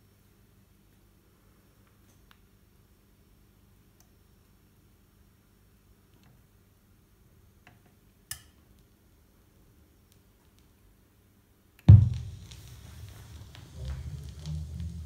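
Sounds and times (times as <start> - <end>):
stylus setting down thump: 11.9 - 13.2.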